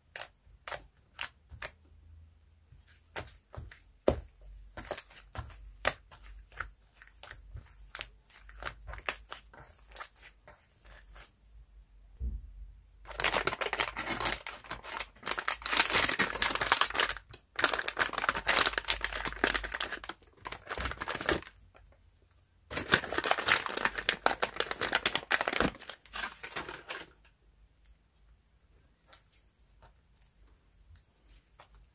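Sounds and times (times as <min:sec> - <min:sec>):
slime being kneaded: 0:02.8 - 0:11.3
plastic pouch crinkling: 0:04.8 - 0:11.3, 0:13.1 - 0:21.6, 0:22.7 - 0:27.2.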